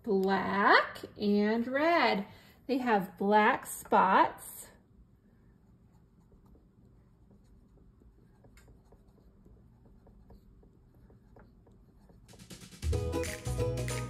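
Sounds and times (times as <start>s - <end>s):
coloured pencil scratching paper: 5.6s - 12.6s.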